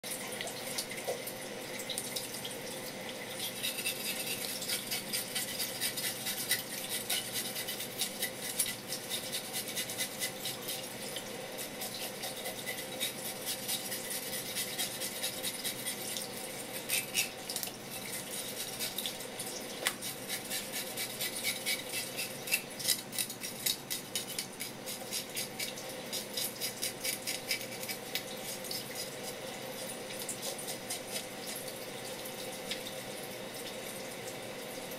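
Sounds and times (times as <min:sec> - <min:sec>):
tap water running: 0:00.0 - 0:34.9
knife scraping fish scales: 0:03.4 - 0:11.0, 0:11.6 - 0:19.2, 0:19.8 - 0:29.5, 0:30.4 - 0:31.4.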